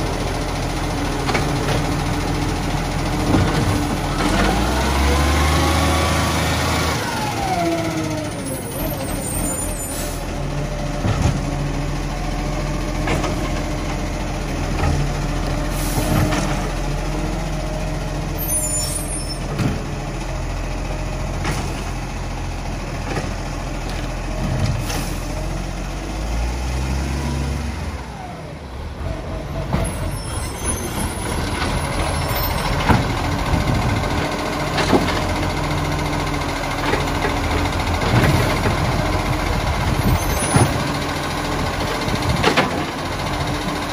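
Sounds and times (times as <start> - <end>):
diesel engine revving: 0.0 - 43.9.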